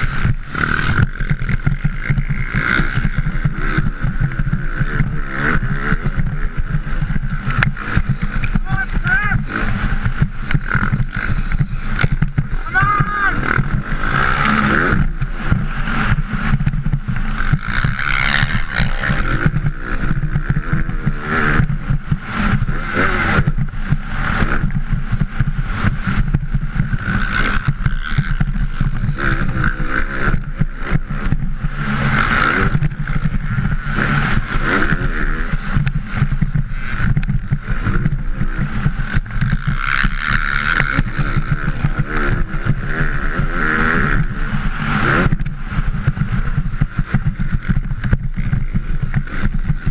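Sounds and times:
motocross bike engine revving: 0.0s - 49.9s
wind buffeting microphone: 0.0s - 49.9s.

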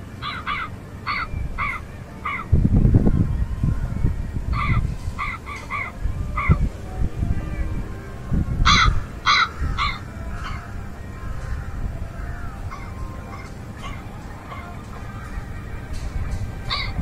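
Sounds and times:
small birds chirping: 0.0s - 17.0s
wind rumbling on microphone: 0.0s - 17.0s
crows cawing: 0.2s - 2.5s, 4.5s - 6.6s, 8.6s - 16.1s, 16.7s - 17.0s.

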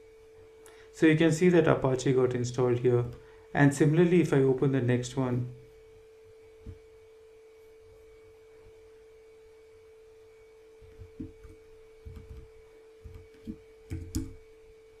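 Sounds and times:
faint electrical hum: 0.0s - 15.0s
keyboard taps and clicks: 13.1s - 14.4s.

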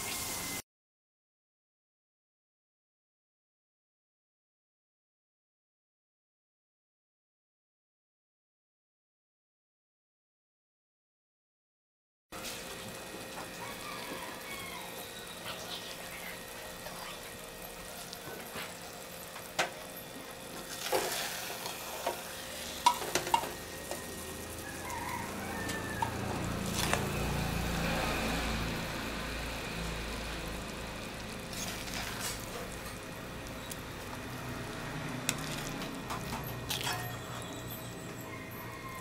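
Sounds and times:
sauce sizzling in a pan: 0.0s - 0.6s, 12.4s - 38.8s
metal ladle scraping and clinking: 35.2s - 38.2s.

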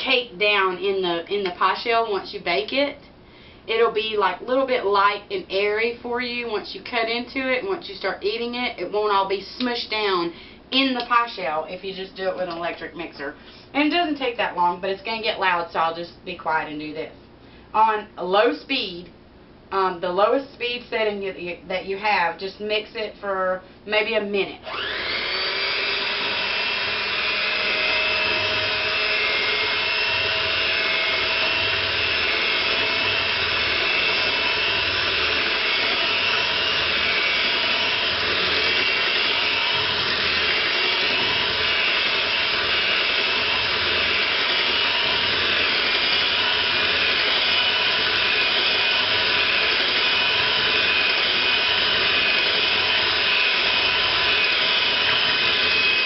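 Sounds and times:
electric hand mixer whirring: 24.6s - 56.0s.

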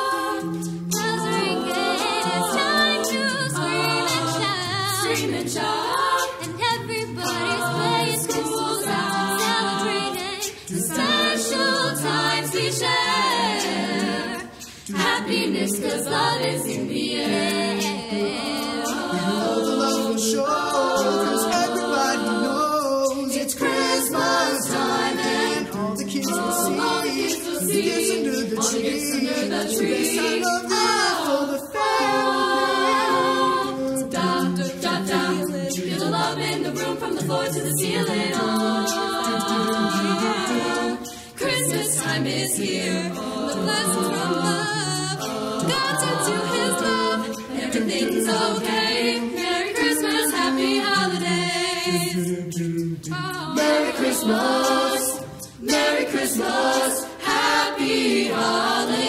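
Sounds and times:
group singing a cappella: 0.0s - 59.0s.

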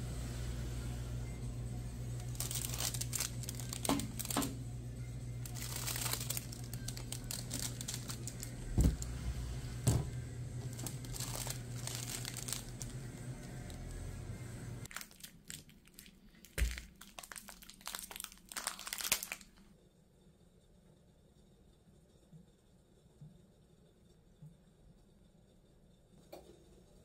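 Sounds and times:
steady low hum: 0.0s - 14.9s
plastic wrappers crinkling: 2.2s - 4.6s, 5.4s - 9.1s, 10.6s - 14.0s, 14.8s - 19.6s.

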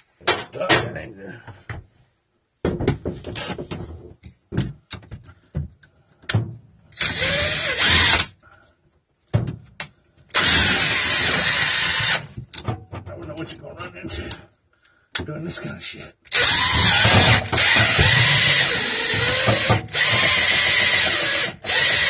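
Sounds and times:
knocks and rattles of duct: 2.6s - 6.8s, 16.7s - 20.7s
drill spinning brush in vent: 16.4s - 22.0s.

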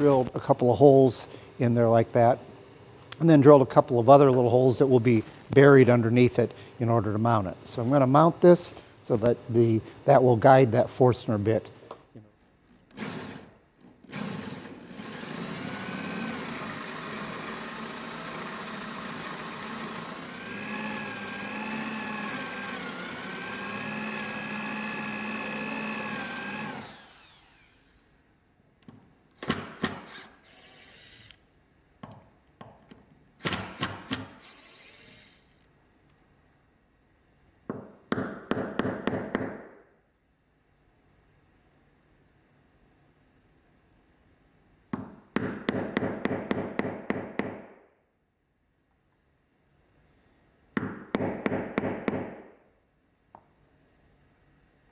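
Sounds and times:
cordless drill whining: 12.9s - 28.1s, 30.1s - 31.4s, 34.4s - 35.6s.

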